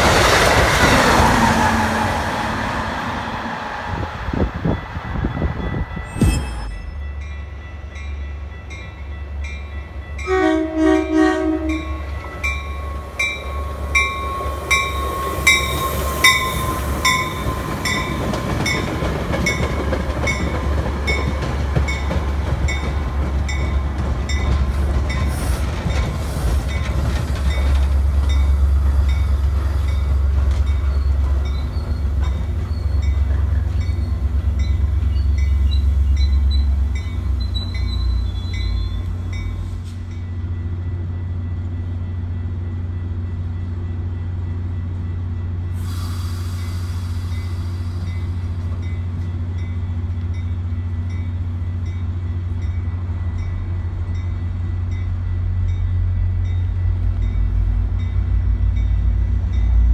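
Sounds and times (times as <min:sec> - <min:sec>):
train cars rumbling by: 0:00.0 - 0:59.9
train horn blast: 0:10.2 - 0:12.2.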